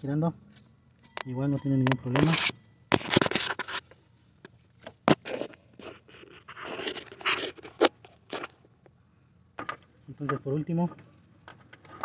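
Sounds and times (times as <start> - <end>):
scraping and rubbing: 2.1 - 3.9, 4.9 - 8.4.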